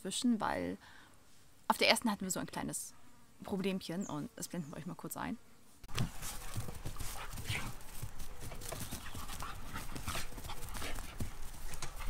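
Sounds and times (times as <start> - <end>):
dogs play-fighting: 5.9 - 12.0
scuffling on grass: 5.9 - 12.0.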